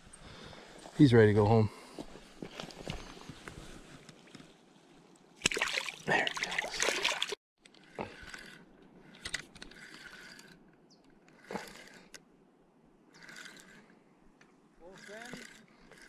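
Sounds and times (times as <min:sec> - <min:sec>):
water splashing and sloshing: 0:05.2 - 0:07.4.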